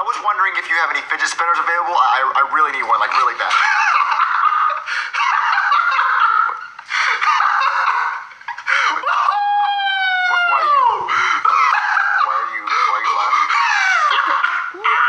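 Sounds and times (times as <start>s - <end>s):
man laughing loudly: 3.4s - 15.0s.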